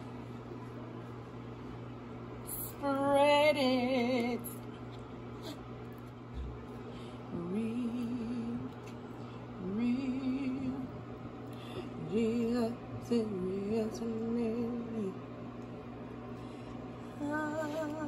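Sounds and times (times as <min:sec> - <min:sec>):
woman singing wordless tune: 0:02.5 - 0:04.6, 0:07.3 - 0:08.8, 0:09.6 - 0:11.0, 0:12.0 - 0:15.3, 0:17.1 - 0:18.0.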